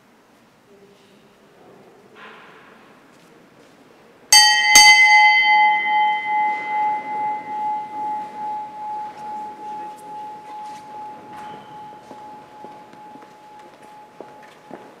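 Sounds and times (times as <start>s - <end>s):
small bell ringing: 4.3s - 14.8s.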